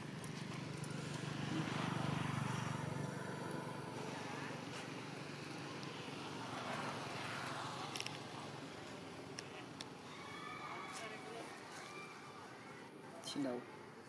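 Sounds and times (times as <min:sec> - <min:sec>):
distant vehicle engine passing: 0:00.0 - 0:10.6.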